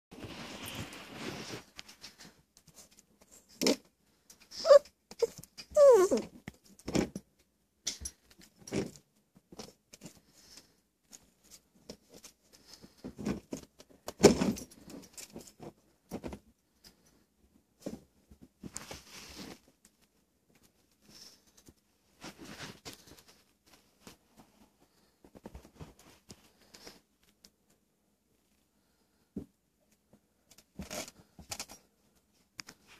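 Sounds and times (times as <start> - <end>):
scattered clicks and rustles: 0.2 - 17.2, 17.8 - 27.9
puppy whining: 4.6 - 6.3.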